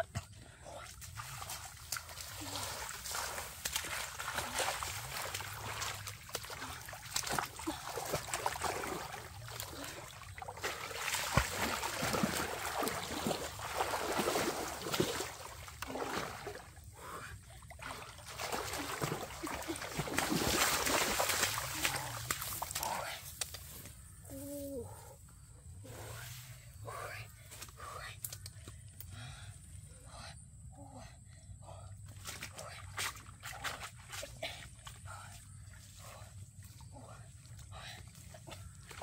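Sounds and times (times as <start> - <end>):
muddy water splashing: 0.1 - 23.8, 31.6 - 39.0.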